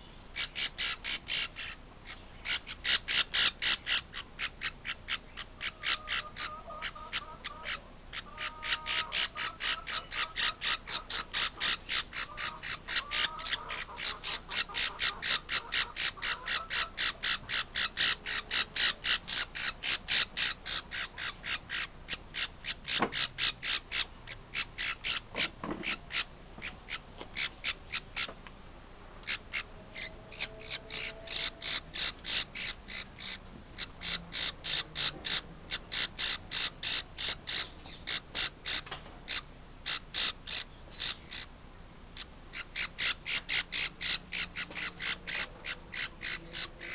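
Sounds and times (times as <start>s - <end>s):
parrot chick squawking: 0.4s - 28.4s, 29.2s - 41.6s, 42.2s - 46.9s.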